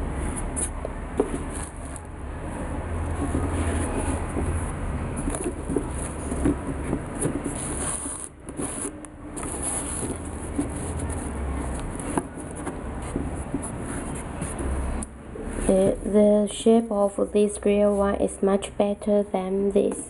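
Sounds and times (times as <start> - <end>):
hands handling sneakers in box: 5.2 - 14.7.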